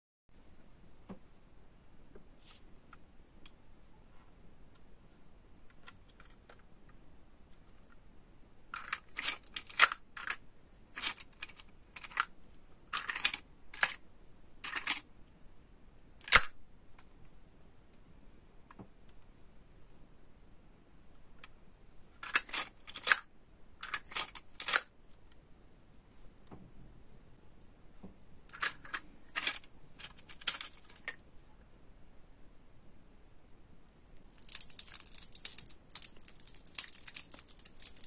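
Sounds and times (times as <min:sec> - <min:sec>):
plastic toy clicking: 0:12.9 - 0:14.0, 0:14.6 - 0:15.0, 0:23.8 - 0:24.9, 0:34.2 - 0:38.0.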